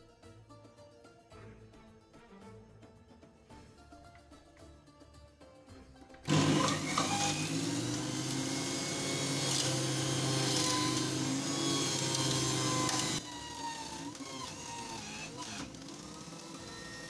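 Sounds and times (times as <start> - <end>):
beetroot being shredded: 6.3 - 16.5
juicer motor humming: 6.3 - 17.0.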